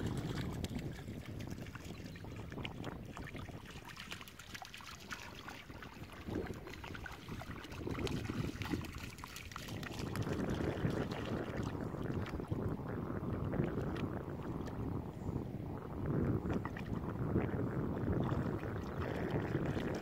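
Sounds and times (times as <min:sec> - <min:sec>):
dog paws splashing in water: 0:00.0 - 0:12.5
wind rumbling on microphone: 0:00.0 - 0:20.0.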